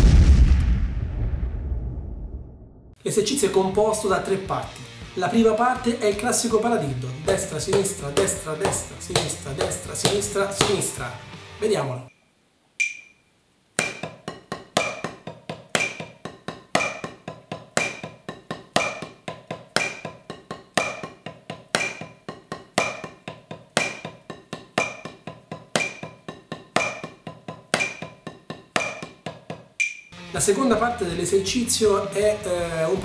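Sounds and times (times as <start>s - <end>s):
drumsticks on practice pad: 7.3s - 11.0s, 12.8s - 13.2s, 13.8s - 30.2s
metronome clicks: 12.8s - 13.2s, 19.7s - 23.1s, 25.8s - 27.1s, 29.8s - 30.2s.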